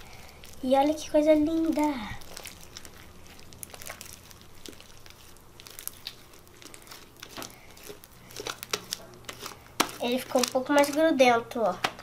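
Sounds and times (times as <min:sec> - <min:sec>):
slime sticky clicks and crackles: 0:01.5 - 0:11.0.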